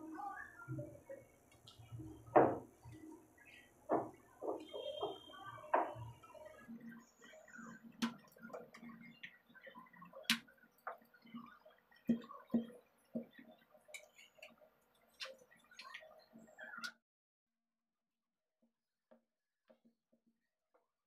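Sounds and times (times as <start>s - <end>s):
rolling pin tapping wooden board: 2.3s - 2.7s, 3.9s - 6.1s.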